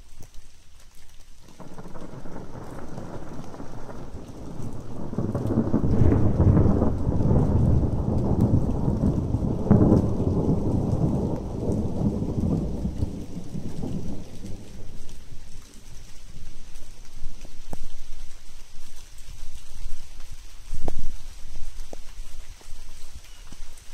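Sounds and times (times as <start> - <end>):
steady rain: 0.0 - 23.9
thunder rumbling: 1.4 - 23.1
sharp thunder claps: 1.6 - 17.7.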